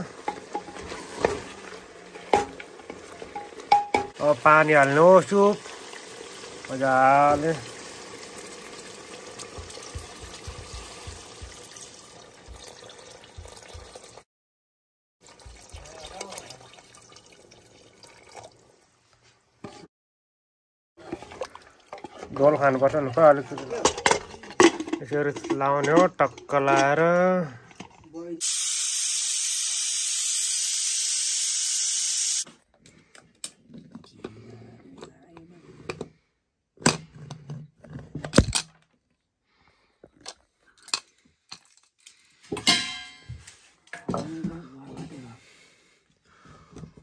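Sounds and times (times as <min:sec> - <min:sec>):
water running into a pot: 0:00.0 - 0:14.2, 0:15.2 - 0:19.0, 0:21.0 - 0:24.8, 0:28.4 - 0:32.4
loud steady hiss: 0:28.4 - 0:32.4.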